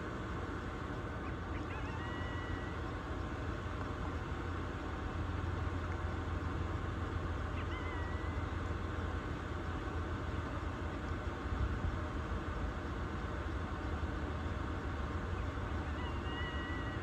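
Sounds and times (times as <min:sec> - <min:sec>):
steady low hum: 0:00.0 - 0:17.0
faint short high calls: 0:01.2 - 0:02.9, 0:07.5 - 0:08.6.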